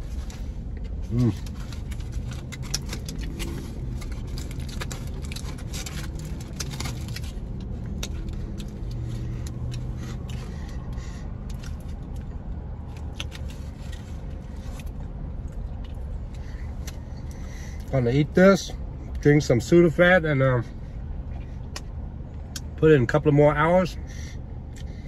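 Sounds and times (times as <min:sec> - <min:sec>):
foil wrapper crinkling: 0:01.2 - 0:08.8.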